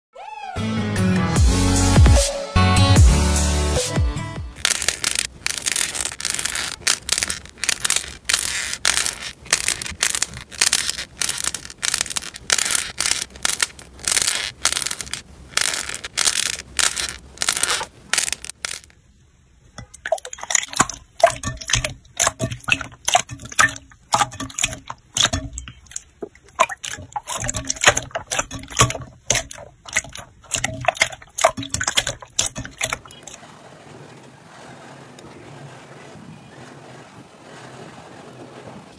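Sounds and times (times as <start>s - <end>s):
crunching crackles of crusted slime: 4.6s - 18.9s.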